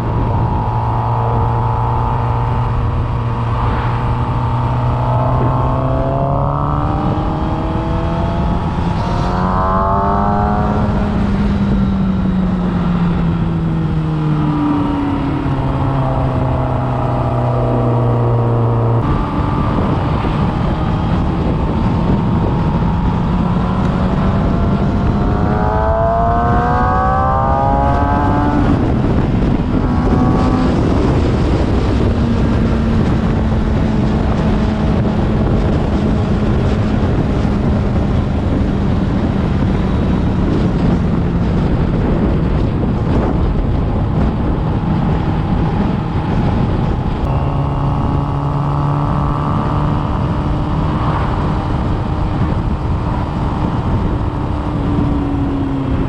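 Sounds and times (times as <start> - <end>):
another engine: 0.0 - 56.0
motorcycle engine running: 0.0 - 56.0
wind rush on microphone: 0.0 - 56.0.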